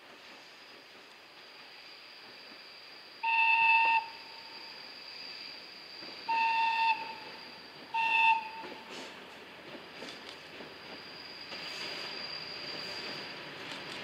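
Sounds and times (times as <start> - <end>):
diesel locomotive horn: 6.3 - 7.2, 7.9 - 8.7.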